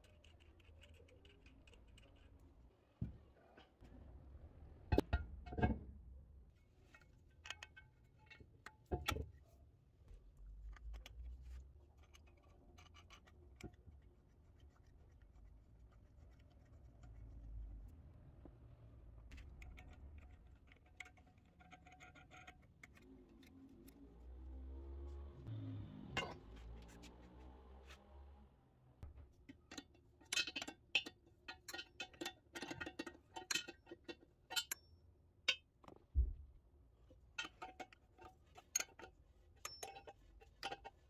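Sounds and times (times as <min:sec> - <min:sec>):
ceramic clicks and scrapes: 0:00.0 - 0:02.6, 0:10.6 - 0:17.8, 0:19.3 - 0:24.0, 0:29.5 - 0:34.9, 0:37.4 - 0:41.0.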